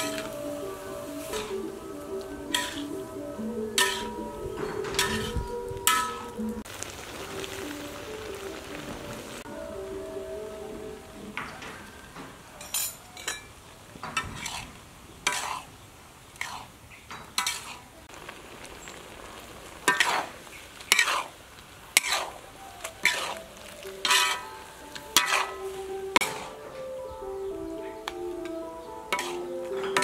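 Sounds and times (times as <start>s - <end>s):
metal spatula scraping a wok: 0.0s - 6.4s, 14.2s - 15.7s, 16.4s - 16.7s, 17.4s - 17.9s, 19.9s - 20.3s, 20.9s - 21.3s, 21.9s - 26.8s, 29.0s - 30.0s
low frying sizzle: 0.0s - 30.0s.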